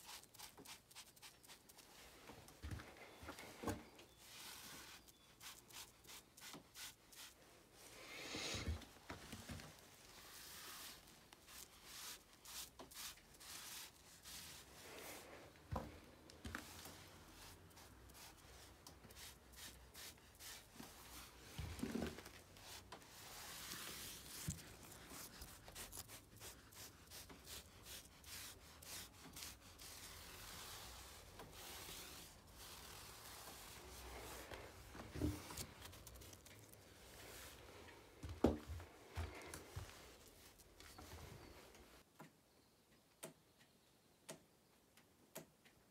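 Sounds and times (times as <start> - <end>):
marker scratching on rough wall: 10.2 - 15.3, 16.5 - 37.5.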